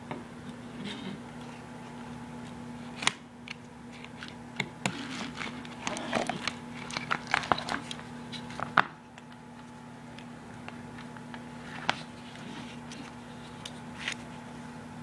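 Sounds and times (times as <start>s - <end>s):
cables rustling in case: 3.9s - 9.8s.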